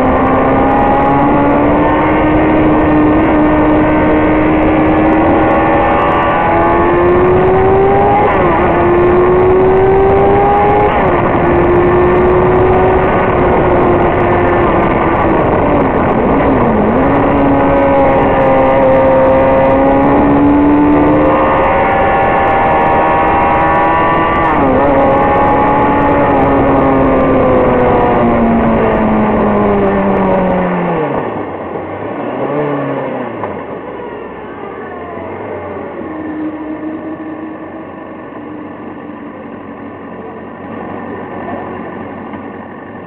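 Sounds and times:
wind rush: 0.0s - 31.9s
motorcycle engine revving: 0.0s - 42.0s.

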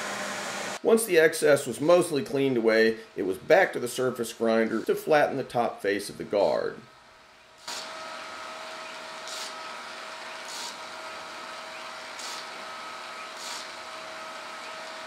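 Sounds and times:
grinding wheel hissing on steel: 7.6s - 15.0s
surface grinder whining: 7.7s - 15.0s.

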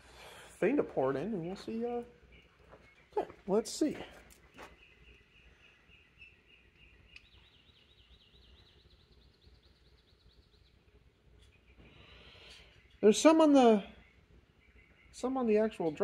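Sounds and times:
faint clicks: 6.8s - 7.4s.

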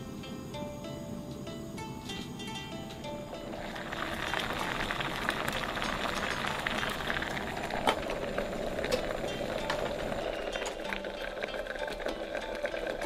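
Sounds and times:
liquid boiling and bubbling: 2.6s - 13.0s.

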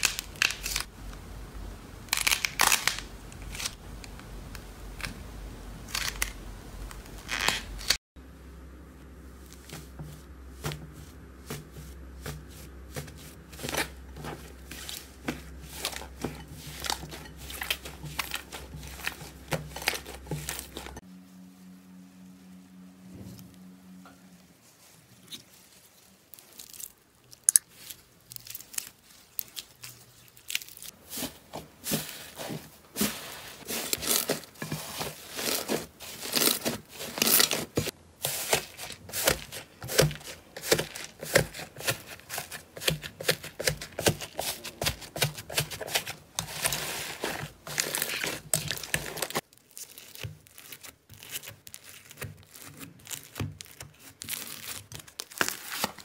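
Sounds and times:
foam-bead slime crunching: 2.1s - 3.8s, 9.3s - 21.1s, 24.5s - 56.0s
slime crackling and popping: 44.8s - 56.0s.

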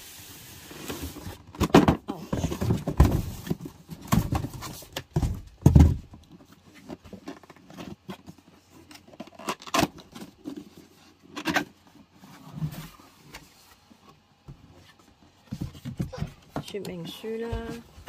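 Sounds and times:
cardboard scraping and rustling: 0.0s - 18.0s
carton thumps: 1.5s - 7.2s, 15.4s - 18.0s.

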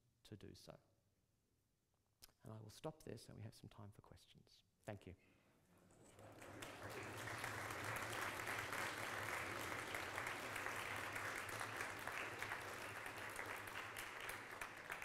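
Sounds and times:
audience applauding: 6.0s - 15.0s.

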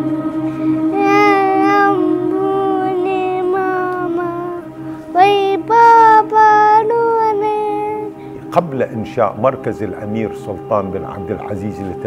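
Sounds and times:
steady low drone: 0.0s - 12.0s
girl singing long notes: 0.4s - 8.2s.

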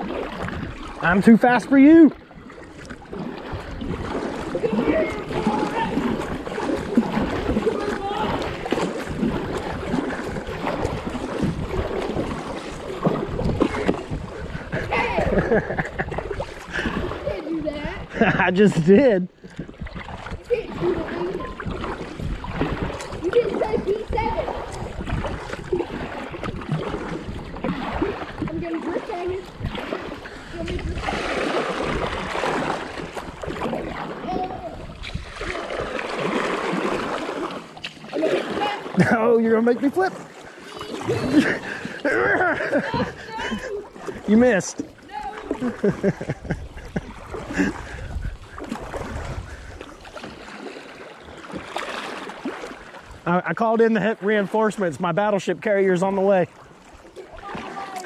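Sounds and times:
wind rumbling on microphone: 0.0s - 1.3s, 2.1s - 37.6s, 40.9s - 50.3s
kayak paddle strokes in water: 0.0s - 58.0s.

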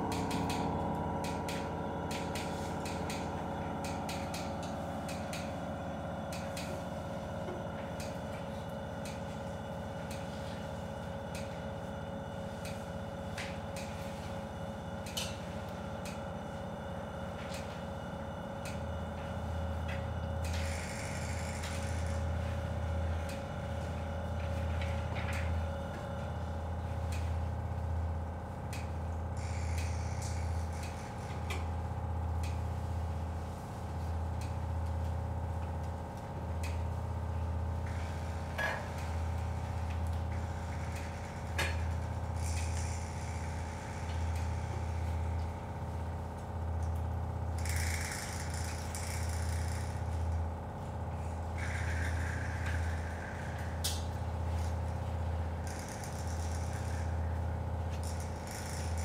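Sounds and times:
electronic drone tones: 39.0s - 46.0s, 51.2s - 59.0s.

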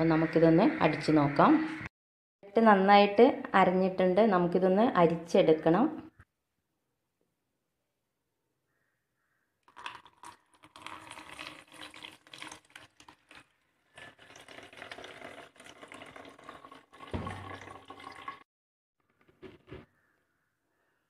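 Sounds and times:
juice pouring through strainer: 9.7s - 18.4s
knock: 17.2s - 17.5s.

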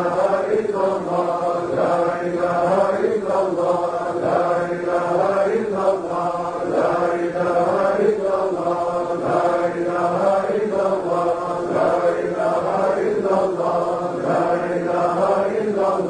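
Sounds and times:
men chanting together: 0.0s - 16.0s.

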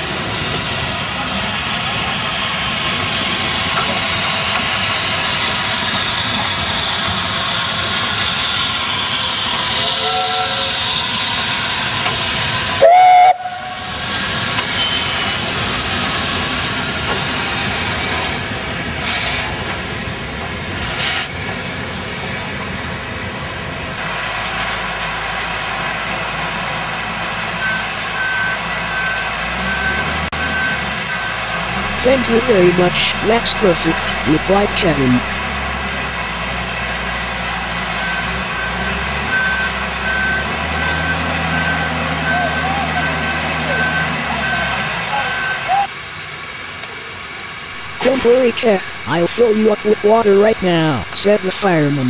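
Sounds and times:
loud steam blast: 0.0s - 22.0s
steam hissing: 0.0s - 30.3s
low engine rumble: 30.3s - 40.6s, 41.3s - 52.0s.

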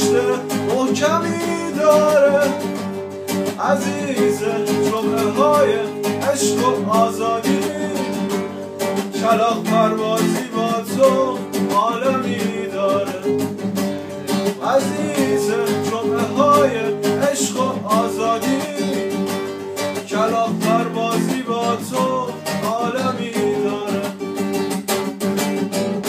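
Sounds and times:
strummed acoustic guitar: 0.0s - 26.0s.

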